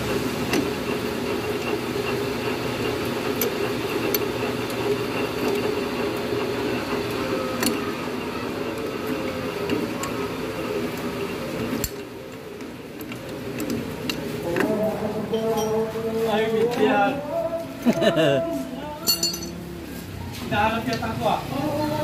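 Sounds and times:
mechanical hum: 0:00.0 - 0:22.0
tools clicking on metal: 0:07.0 - 0:08.0, 0:08.8 - 0:10.3, 0:10.9 - 0:16.0, 0:19.0 - 0:19.6.

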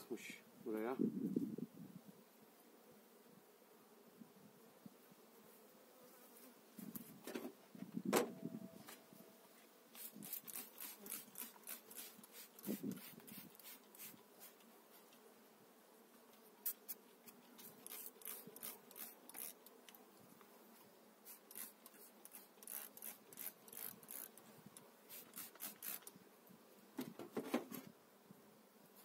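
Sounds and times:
gloved hands scratching beehive frames: 0:09.9 - 0:15.3, 0:16.0 - 0:26.2.

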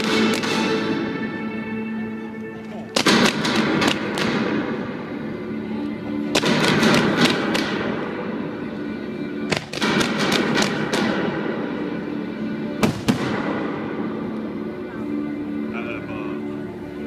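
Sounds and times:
fireworks cracks and bangs: 0:00.0 - 0:01.0, 0:02.9 - 0:05.0, 0:06.3 - 0:08.3, 0:09.5 - 0:11.6, 0:12.8 - 0:13.9
fireworks crackling rush: 0:00.0 - 0:01.3, 0:02.6 - 0:08.6, 0:09.4 - 0:11.9, 0:12.6 - 0:14.4
music: 0:00.0 - 0:17.0.

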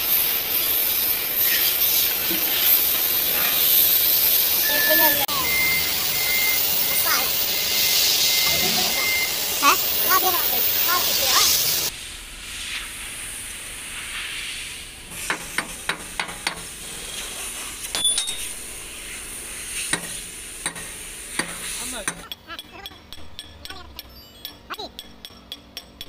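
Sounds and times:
steady hiss: 0:00.0 - 0:22.3
metal tools clicking and clinking: 0:17.9 - 0:18.6, 0:20.7 - 0:26.0.

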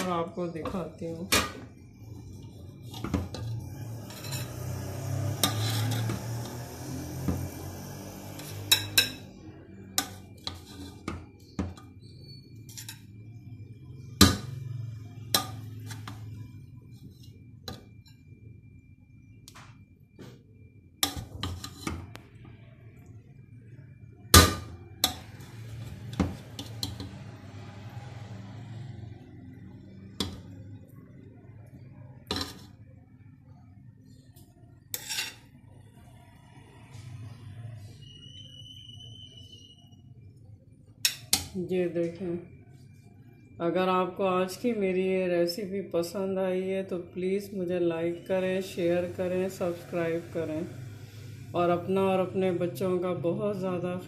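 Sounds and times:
metal spoon scraping pot: 0:00.0 - 0:18.2, 0:21.0 - 0:22.2, 0:24.4 - 0:27.4, 0:32.2 - 0:32.8, 0:34.8 - 0:35.6
metal spoon clinking on pot: 0:05.4 - 0:06.2, 0:08.4 - 0:09.4, 0:10.0 - 0:13.2, 0:41.0 - 0:41.6
spoon clinking: 0:08.6 - 0:09.3.

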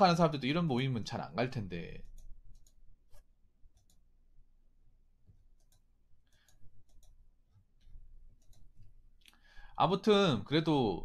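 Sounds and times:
faint computer mouse clicks: 0:05.6 - 0:07.2, 0:07.8 - 0:09.5.

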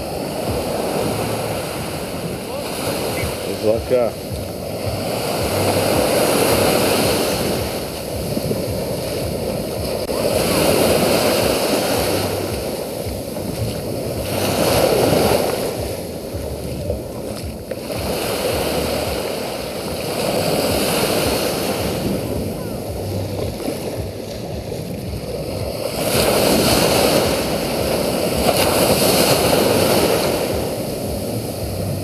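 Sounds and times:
waves breaking on beach: 0:00.0 - 0:32.0.

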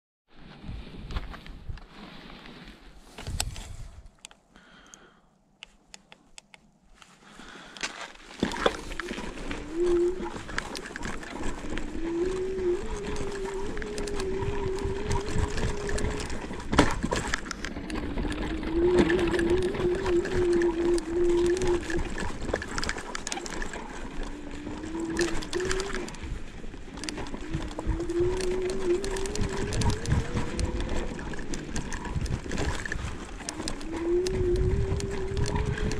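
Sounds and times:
rumble and rattle: 0:07.9 - 0:35.9
electric scooter motor whine: 0:08.3 - 0:35.9.

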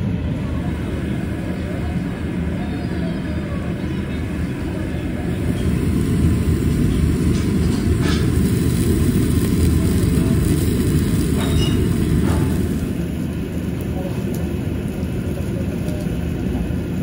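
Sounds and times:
grill and exhaust roaring: 0:00.0 - 0:17.0
meat sizzling and popping: 0:05.6 - 0:17.0.

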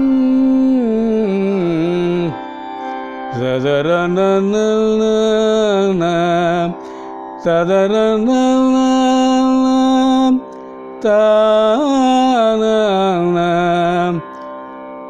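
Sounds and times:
man singing note syllables: 0:03.3 - 0:06.8, 0:07.4 - 0:14.3.

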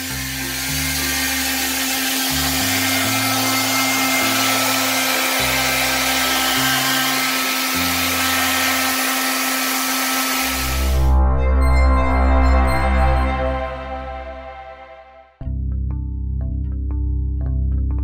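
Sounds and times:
hair dryer running: 0:00.0 - 0:11.2
soft background music: 0:10.4 - 0:18.0.

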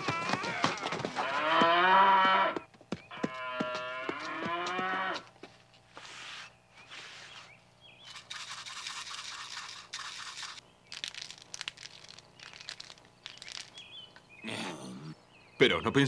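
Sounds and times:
shaker rattling: 0:08.0 - 0:14.1.

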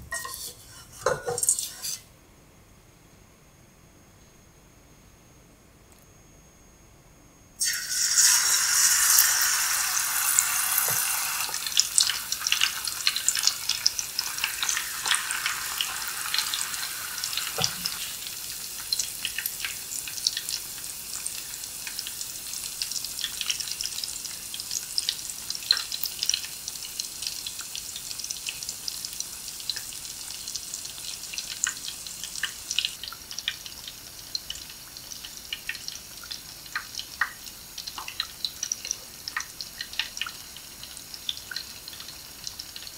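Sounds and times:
deep-frying sizzle and crackling: 0:00.0 - 0:02.1, 0:07.6 - 0:42.9.

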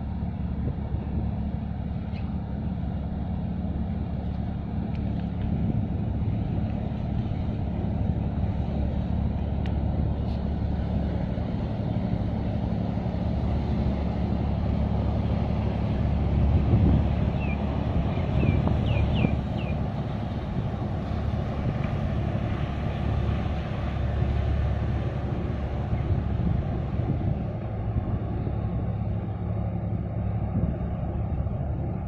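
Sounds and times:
ship machinery droning rumble: 0:00.0 - 0:32.0.

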